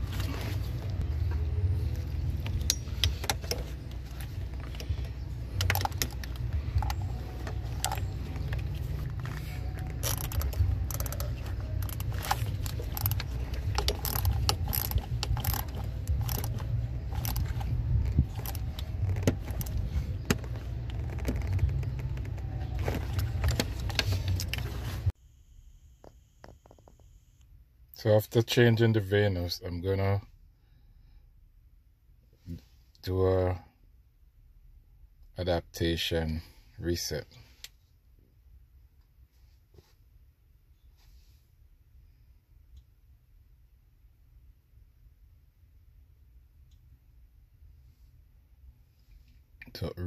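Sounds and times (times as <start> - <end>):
steady low rumble: 0.0 - 28.2
ratchet wrench clicking: 10.0 - 19.8.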